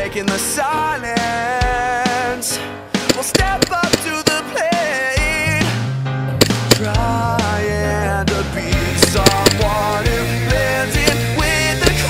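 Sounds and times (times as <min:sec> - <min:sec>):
song with long held note: 0:02.9 - 0:12.0
drum hits: 0:03.0 - 0:04.4, 0:06.4 - 0:07.2, 0:08.8 - 0:09.9, 0:11.0 - 0:12.0.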